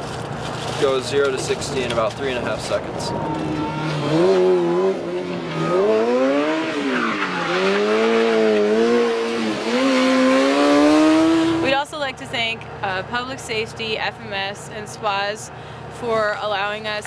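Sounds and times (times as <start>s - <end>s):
tyres skidding on pavement: 0.0s - 11.8s
race car engine revving: 0.9s - 11.8s.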